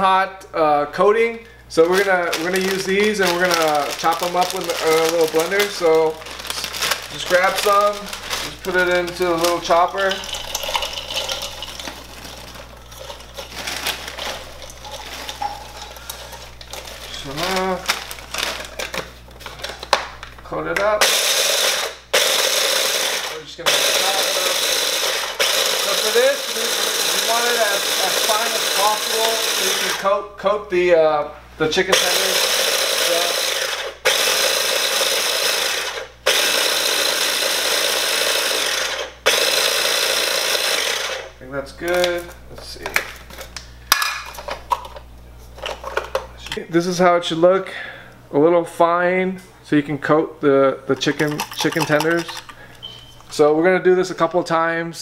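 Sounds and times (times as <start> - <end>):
snack bag rustling: 1.7 - 20.4, 50.9 - 53.4
electric food chopper grinding: 1.8 - 19.8, 21.0 - 30.1, 31.9 - 41.3
snacks falling into plastic bowl: 1.8 - 20.4, 50.9 - 52.6.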